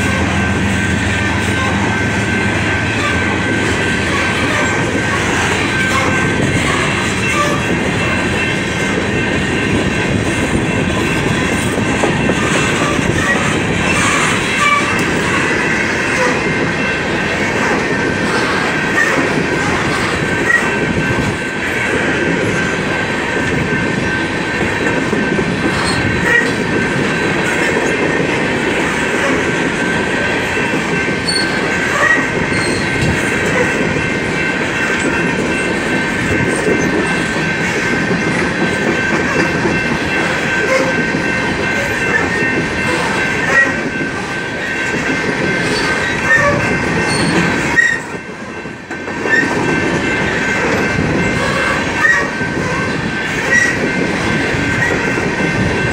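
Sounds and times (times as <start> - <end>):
train wheels rumbling on rails: 0.0 - 55.9
high wheel squeal: 31.2 - 33.0, 45.7 - 48.1, 51.4 - 53.9.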